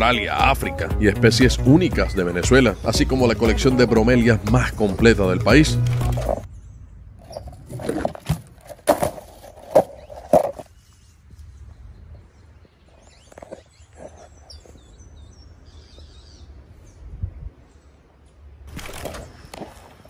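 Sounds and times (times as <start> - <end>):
small birds chirping: 1.6 - 4.9, 9.4 - 18.1.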